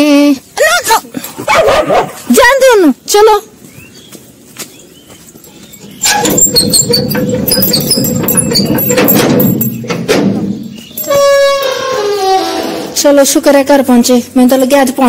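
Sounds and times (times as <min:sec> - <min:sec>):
metal gate grinding and squealing: 0:05.8 - 0:13.0.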